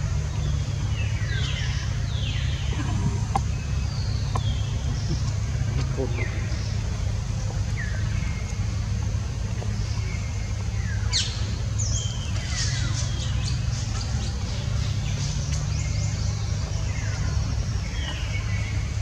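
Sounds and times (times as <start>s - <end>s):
birds chirping: 0.0s - 19.0s
steady low rumble: 0.0s - 19.0s.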